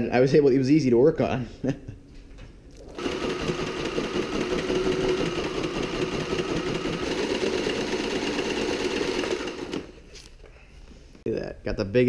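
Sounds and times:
sewing machine running: 0:02.8 - 0:10.0.

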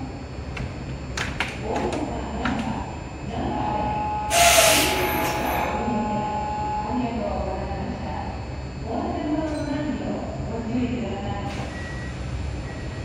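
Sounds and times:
steady high tone: 0:03.3 - 0:08.4
compressed air hiss from train: 0:04.3 - 0:05.1.

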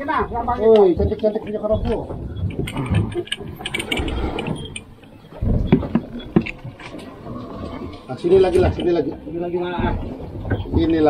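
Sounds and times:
low boat rumble: 0:00.0 - 0:11.0.

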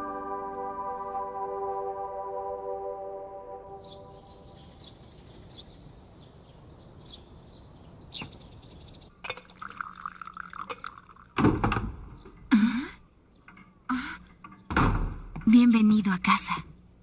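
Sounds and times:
tea pouring into a cup: 0:09.3 - 0:11.4.

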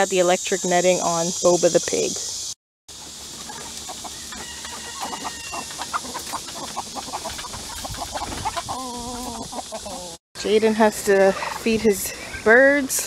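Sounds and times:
hens clucking: 0:03.3 - 0:10.2, 0:11.1 - 0:12.6.

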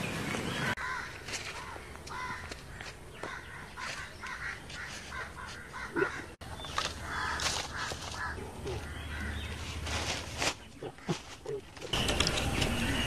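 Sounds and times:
birds calling: 0:00.0 - 0:13.0
crows cawing: 0:00.7 - 0:09.5.

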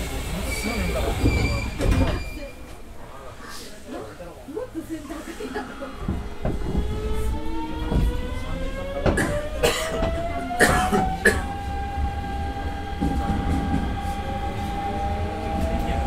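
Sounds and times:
train wheel knocks: 0:06.0 - 0:07.2, 0:07.8 - 0:08.3, 0:09.0 - 0:10.3.

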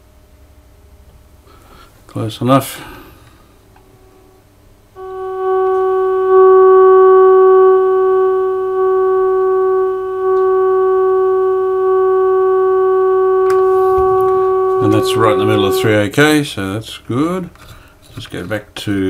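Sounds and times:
radio test tone: 0:05.0 - 0:16.1.

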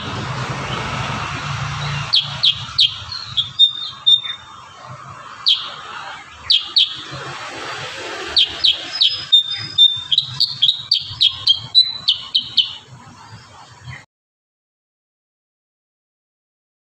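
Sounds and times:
bird calling in sharp notes: 0:01.7 - 0:07.4, 0:08.2 - 0:14.0.

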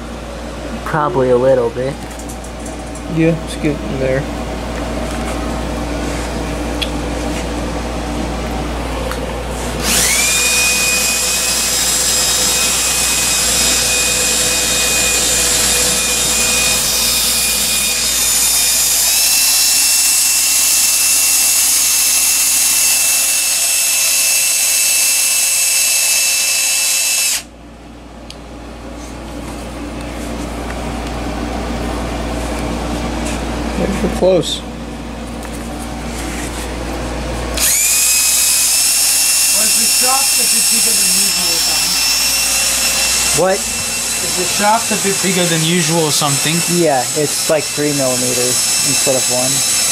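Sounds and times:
cordless drill whining: 0:09.8 - 0:27.5, 0:37.6 - 0:49.9.

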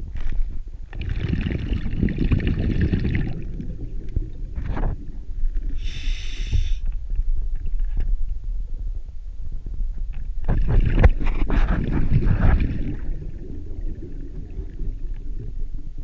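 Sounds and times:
low rumble of water: 0:00.0 - 0:16.0
exhaled bubbles underwater: 0:00.9 - 0:06.0, 0:10.5 - 0:16.0
regulator inhalation hiss: 0:05.8 - 0:06.9.

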